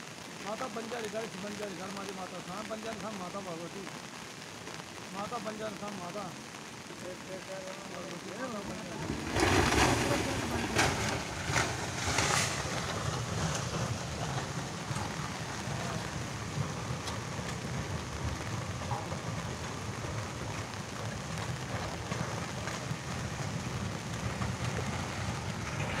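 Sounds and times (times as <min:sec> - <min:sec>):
steady rain falling: 0:00.0 - 0:26.0
low unsteady rumble: 0:06.1 - 0:26.0.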